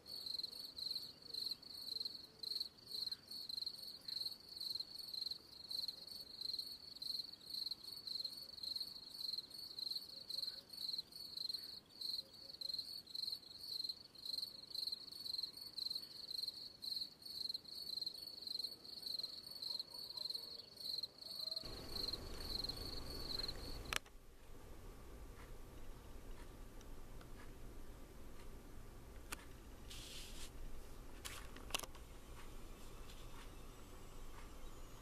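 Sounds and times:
crickets chirping: 0:00.1 - 0:24.0
low hiss: 0:21.6 - 0:35.0.

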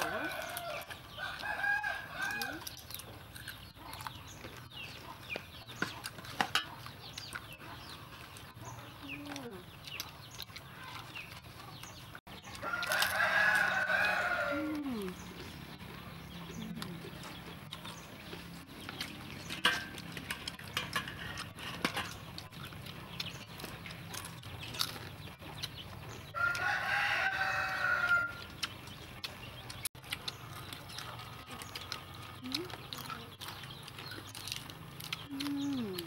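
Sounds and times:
rooster crowing: 0:00.0 - 0:02.7, 0:12.6 - 0:14.8, 0:26.4 - 0:28.4.

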